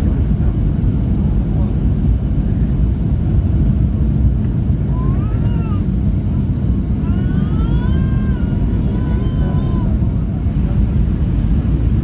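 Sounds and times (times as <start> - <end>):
aircraft cabin rumble: 0.0 - 12.0.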